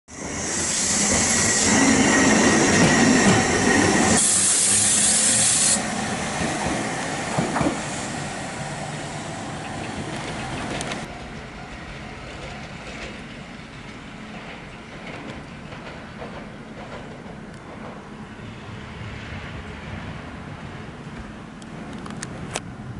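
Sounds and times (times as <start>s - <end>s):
high wheel squeal: 0.1s - 6.2s
tram wheels on rails: 0.1s - 22.9s.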